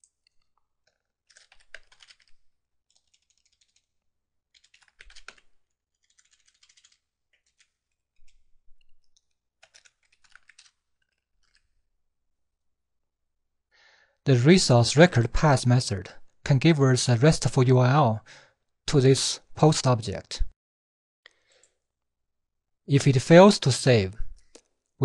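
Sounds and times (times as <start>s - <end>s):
typing on computer keyboard: 0.0s - 11.8s.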